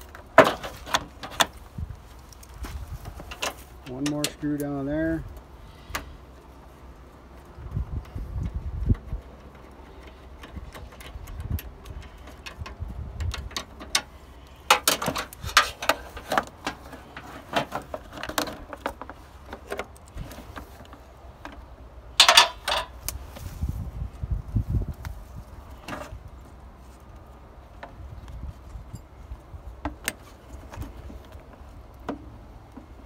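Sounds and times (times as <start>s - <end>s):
plastic headlight and tools clicking: 8.0s - 23.2s.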